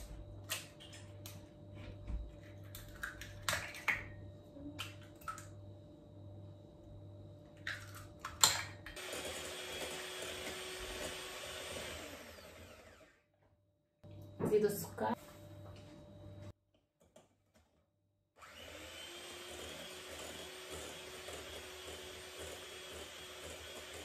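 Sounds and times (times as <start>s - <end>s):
electric hand mixer whirring: 9.0s - 13.3s, 18.4s - 24.0s.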